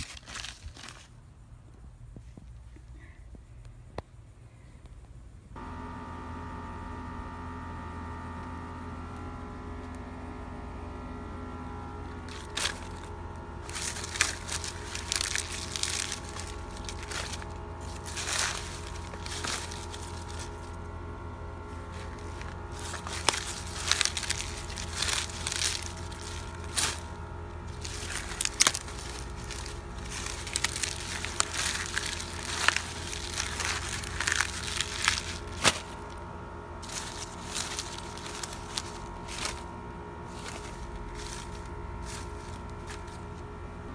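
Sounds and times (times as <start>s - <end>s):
dry leaves and paper crumpling: 0.0s - 1.2s, 12.1s - 20.9s, 21.6s - 36.2s, 36.8s - 43.5s.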